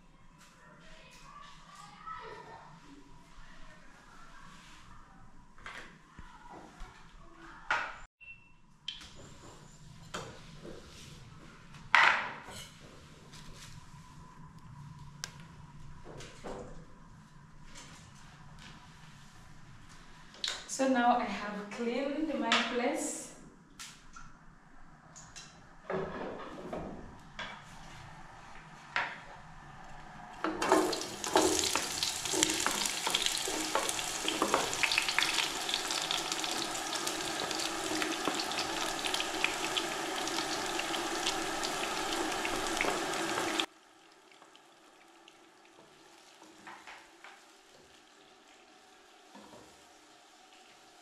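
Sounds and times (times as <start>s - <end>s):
onions sizzling in hot oil: 30.6s - 43.7s.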